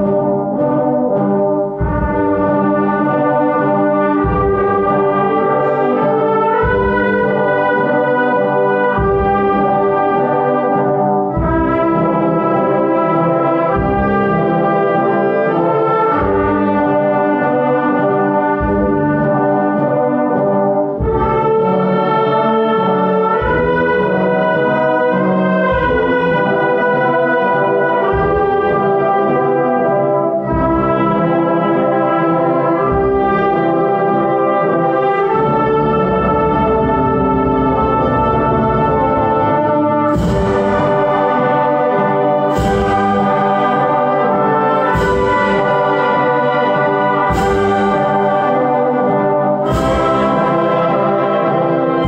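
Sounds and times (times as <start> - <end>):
brass band playing funeral march: 0.0 - 52.0
low drum beat: 1.7 - 10.3, 11.2 - 14.8, 16.1 - 20.0, 23.3 - 29.4, 40.0 - 48.9, 49.5 - 51.2.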